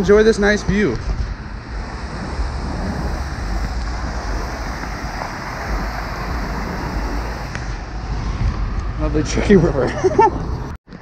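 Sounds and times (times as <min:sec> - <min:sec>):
wind buffeting microphone: 0:00.0 - 0:10.8
water rushing over rocks: 0:01.6 - 0:07.6.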